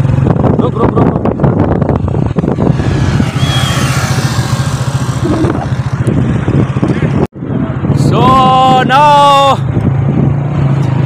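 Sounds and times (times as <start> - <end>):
motorcycle engine running: 0.0 - 7.8
rushing road noise: 0.0 - 11.0.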